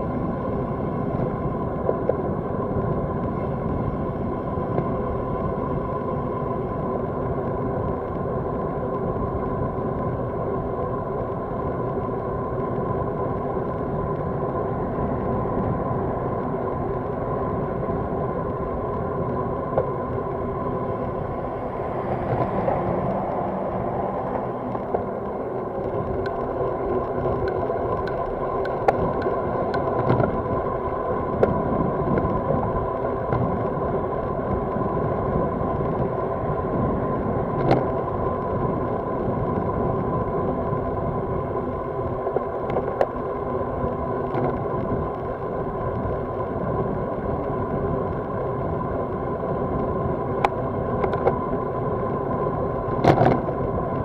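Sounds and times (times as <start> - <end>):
wind and road noise: 0.0 - 54.0
road traffic passing: 19.2 - 28.4.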